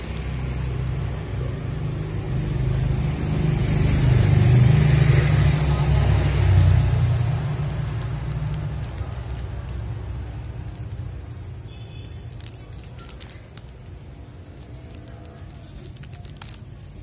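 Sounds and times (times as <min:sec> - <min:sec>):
vehicle engine running: 0:00.0 - 0:11.6.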